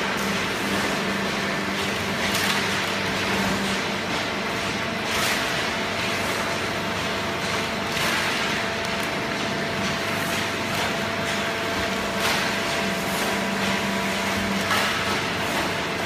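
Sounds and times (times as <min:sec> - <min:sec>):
baler and conveyor humming: 0:00.0 - 0:16.0.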